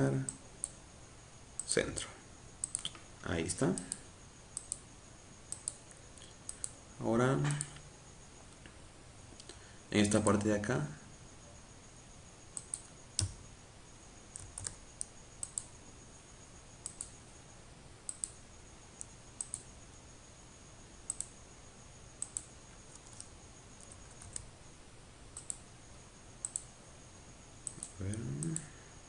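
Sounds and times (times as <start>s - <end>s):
faint electrical hum: 0.0s - 29.0s
computer mouse buttons clicking: 2.6s - 3.0s, 5.5s - 5.8s, 14.4s - 15.7s, 19.0s - 19.7s, 21.1s - 21.3s, 22.2s - 24.4s, 25.4s - 25.6s, 27.6s - 28.7s.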